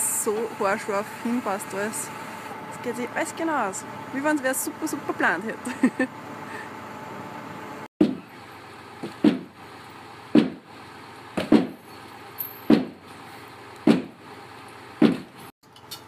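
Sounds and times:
hammer blows on timber panel: 8.0s - 8.3s, 9.0s - 9.6s, 10.3s - 10.7s, 11.4s - 11.8s, 12.7s - 13.0s, 13.9s - 14.2s, 15.0s - 15.4s.

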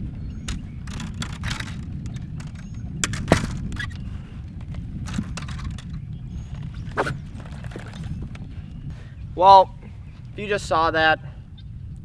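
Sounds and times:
fishing gear clicks and knocks: 0.4s - 8.5s.

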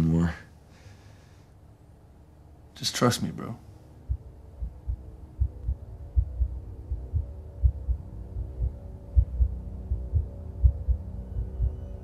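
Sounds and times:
steady low drone: 3.6s - 12.0s
heartbeat thumps: 4.0s - 11.8s.

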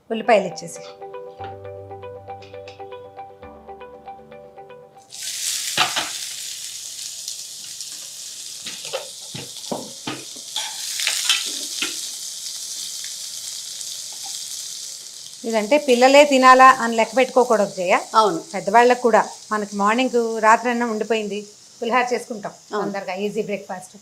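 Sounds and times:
music: 0.0s - 5.2s
onions sizzling in hot oil: 5.1s - 24.0s.

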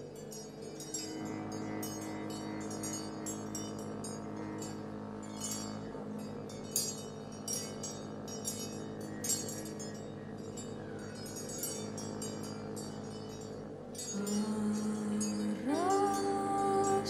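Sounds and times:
high metallic tinkling: 0.0s - 17.0s
low held chord: 0.0s - 17.0s.

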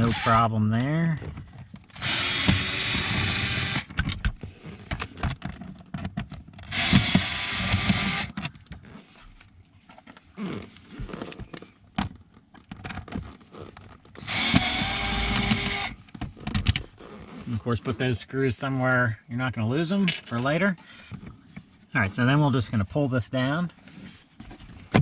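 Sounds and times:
cordless screwdriver whirring: 0.0s - 0.4s, 1.9s - 3.9s, 6.7s - 8.3s, 14.2s - 16.0s
handling clicks and knocks: 3.9s - 6.7s, 16.0s - 17.0s.

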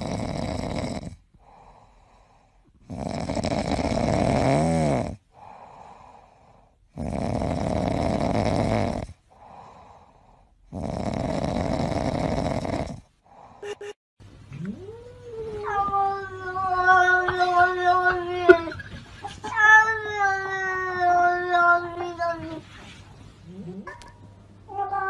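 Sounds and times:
cat snoring: 0.0s - 1.7s, 2.8s - 5.7s, 6.9s - 9.9s, 10.7s - 13.1s
cat breathing quietly: 1.4s - 2.8s.

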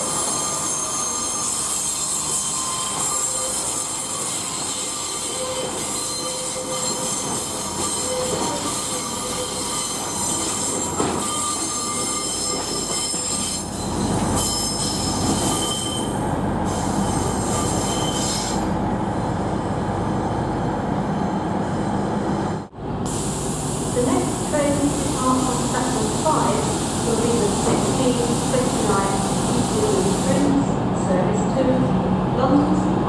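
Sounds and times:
train wheels squealing: 0.0s - 18.7s.

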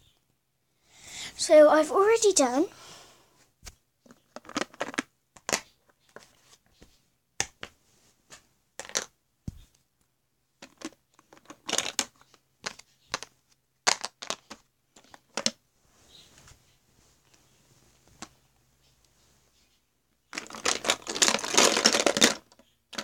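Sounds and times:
plastic containers clattering: 4.1s - 6.4s, 8.8s - 9.6s, 10.6s - 13.3s, 13.9s - 15.6s, 20.3s - 23.0s.

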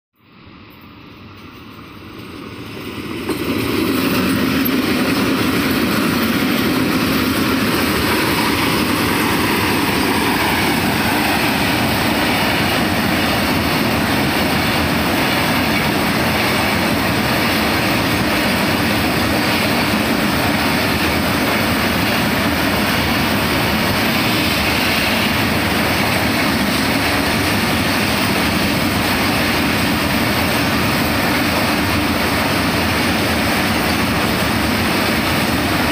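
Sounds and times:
locomotive whine: 0.2s - 35.9s
train wheels rolling on rails: 0.3s - 35.9s.

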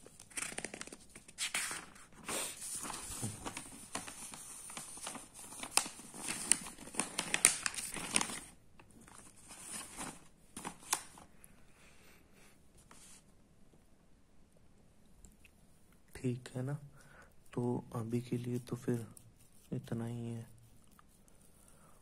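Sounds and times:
paper rustling and crinkling: 0.0s - 11.3s
sharp paper crackles: 0.0s - 11.3s.

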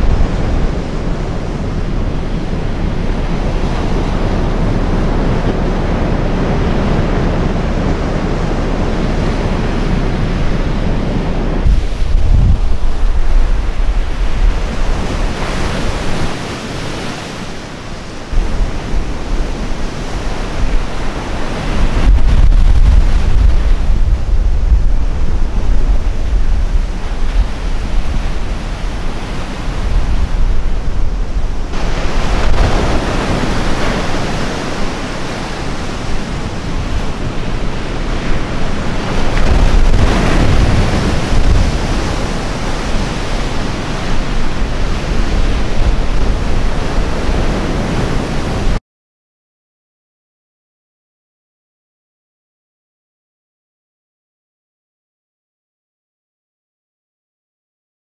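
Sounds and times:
wind buffeting microphone: 0.0s - 48.8s
waves crashing on gravel shore: 11.5s - 47.8s.

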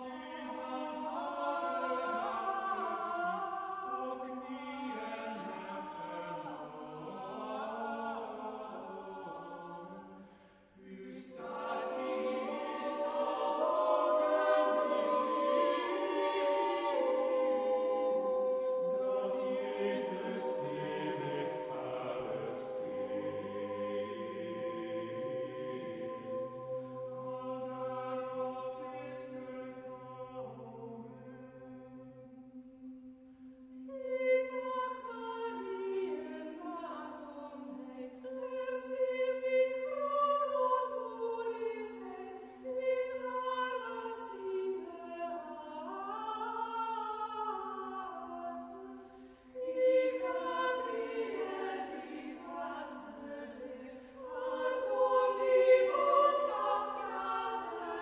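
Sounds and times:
choir singing: 0.0s - 58.0s
low vocal drone: 10.8s - 32.1s.

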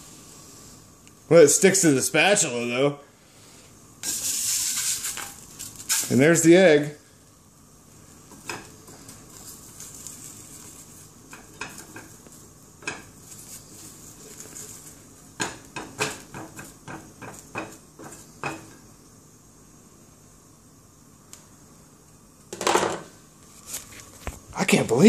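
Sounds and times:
egg sizzling: 4.0s - 6.3s, 7.8s - 18.8s.

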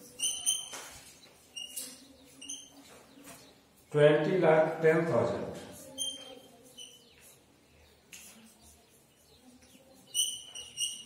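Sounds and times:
chalk squeaks: 0.0s - 3.0s, 5.7s - 7.5s, 8.2s - 11.0s
chalk scratching on blackboard: 5.6s - 7.5s, 8.1s - 11.0s.

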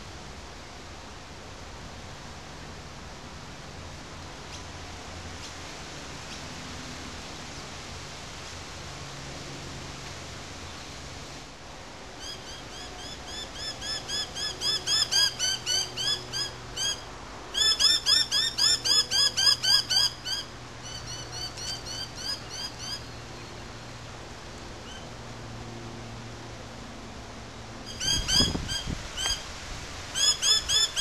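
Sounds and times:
mynahs calling: 27.9s - 29.4s.

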